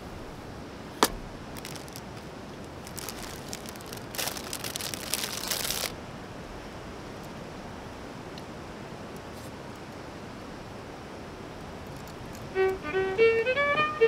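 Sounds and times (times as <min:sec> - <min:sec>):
plastic bag crinkling: 0:01.4 - 0:05.9.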